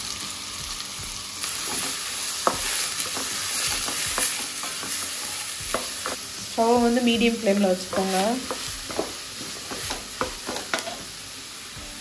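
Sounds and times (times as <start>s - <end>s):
onions sizzling in a pan: 0.0s - 12.0s
wooden spatula scraping a pan: 7.8s - 11.1s.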